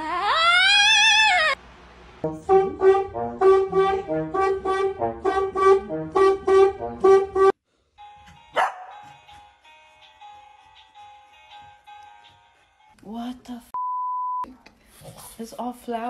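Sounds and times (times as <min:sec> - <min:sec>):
toy music: 0:08.0 - 0:12.9
dog barking: 0:08.5 - 0:09.0.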